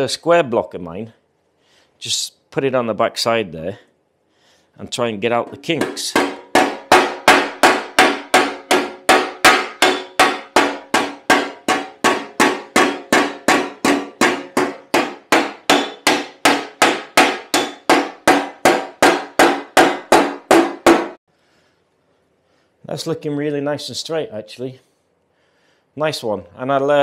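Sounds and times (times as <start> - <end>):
hammer ringing on steel: 5.8 - 21.2.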